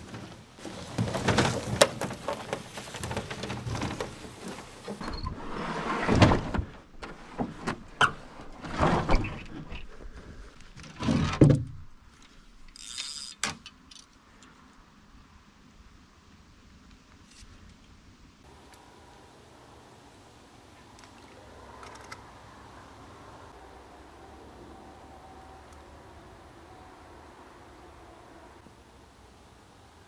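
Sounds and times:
boat hull scraping over dirt: 0.0s - 9.6s.

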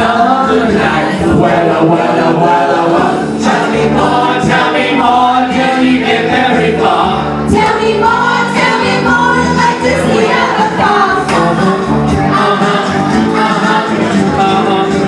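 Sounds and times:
backing music with bass and beat: 0.0s - 15.0s
people singing along: 0.0s - 15.0s.

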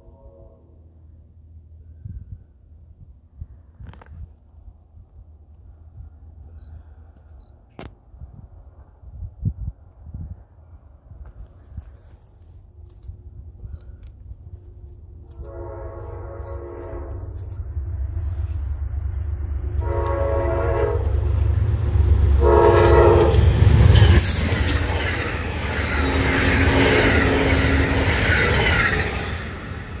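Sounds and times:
train horn blasts: 0.0s - 0.9s, 15.3s - 17.4s, 19.7s - 24.2s, 25.8s - 29.3s
diesel locomotive engine rumble: 0.0s - 30.0s
train wheels rushing over rails: 20.9s - 30.0s.

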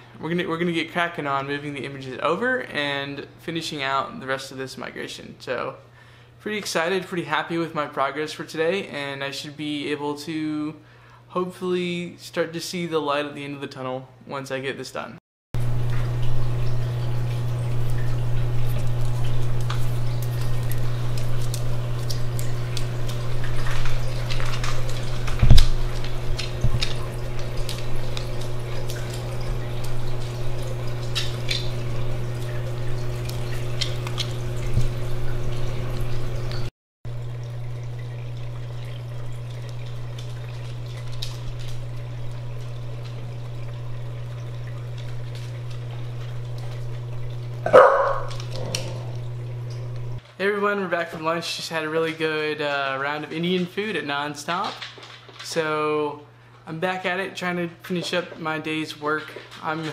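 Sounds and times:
trickling dripping water: 15.6s - 50.3s, 52.0s - 59.9s
aquarium pump hum: 15.6s - 54.5s.

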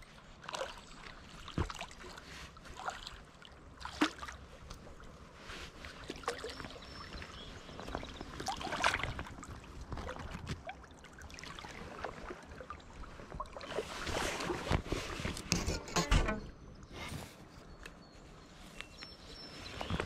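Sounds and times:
fish splashing in water: 0.4s - 4.6s, 5.8s - 15.2s.

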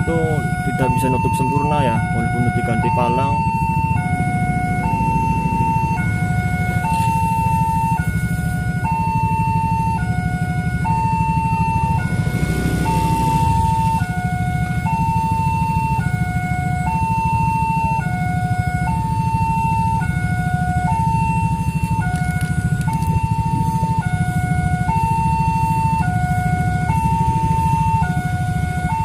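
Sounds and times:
two-tone level crossing alarm: 0.0s - 29.0s.

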